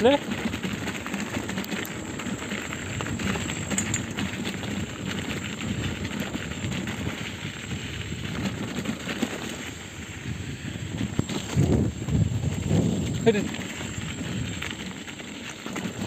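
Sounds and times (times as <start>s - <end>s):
bike rattling: 0.0s - 16.0s
tyres crackling over stones: 0.0s - 16.0s.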